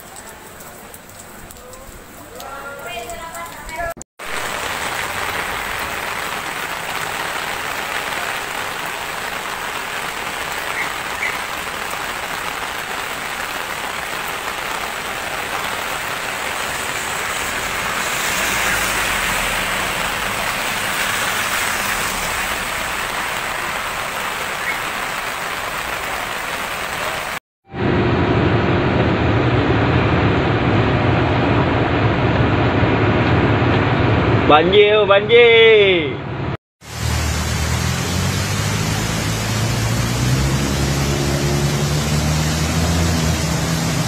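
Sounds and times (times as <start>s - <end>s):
heavy rain falling: 0.0s - 27.4s, 36.8s - 44.0s.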